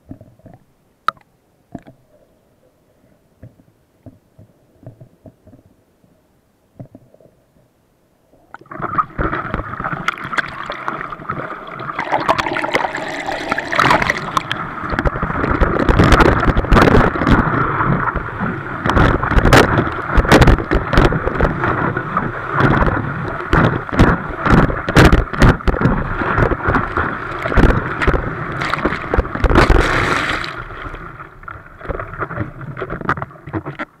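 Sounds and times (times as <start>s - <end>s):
water rushing and splashing: 8.6s - 33.8s
water slapping against board: 22.6s - 30.6s.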